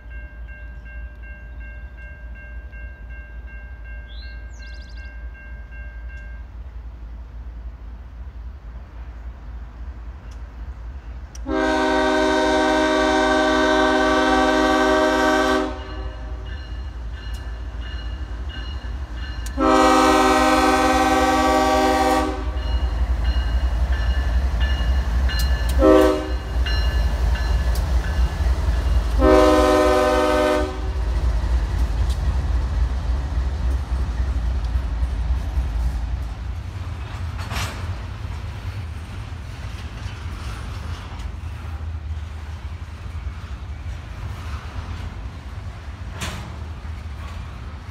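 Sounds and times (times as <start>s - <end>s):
locomotive engines and wheels rumbling: 0.0s - 47.9s
locomotive air horn: 11.4s - 16.5s, 19.4s - 22.6s, 25.7s - 26.4s, 29.1s - 31.0s.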